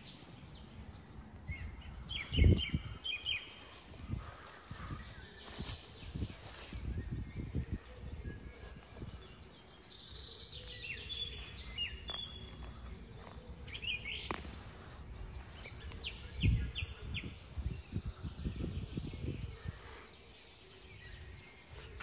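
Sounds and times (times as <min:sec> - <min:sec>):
small bird chirping: 0:00.0 - 0:22.0
hand scraping through soil: 0:11.3 - 0:16.4.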